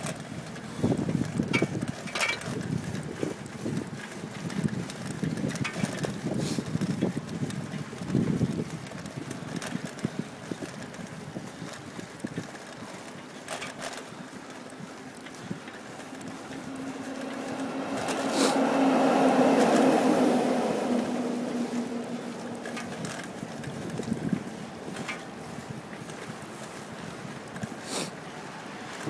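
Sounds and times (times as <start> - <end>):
bicycle riding: 0.0 - 29.0
rattles and clicks: 0.0 - 29.0
wind buffeting microphone: 0.0 - 29.0
vehicle engine drone: 13.4 - 29.0.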